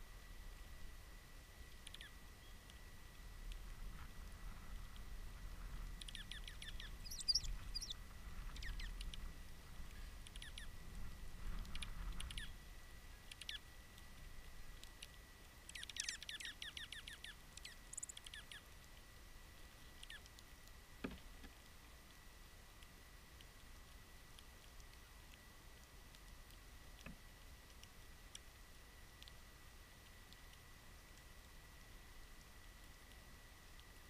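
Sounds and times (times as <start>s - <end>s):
small songbirds calling: 1.8s - 2.8s, 6.0s - 9.2s, 9.8s - 10.8s, 11.7s - 13.7s, 15.7s - 18.7s, 20.0s - 20.4s.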